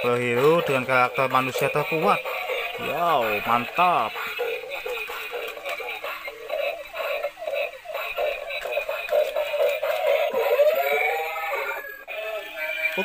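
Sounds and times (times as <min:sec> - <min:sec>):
toy playing electronic song: 0:00.0 - 0:13.0.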